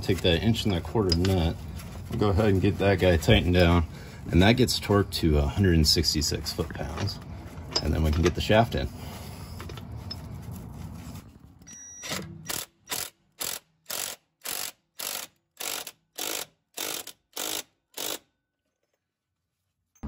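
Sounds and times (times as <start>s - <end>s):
hand ratchet clicking: 12.5s - 18.3s.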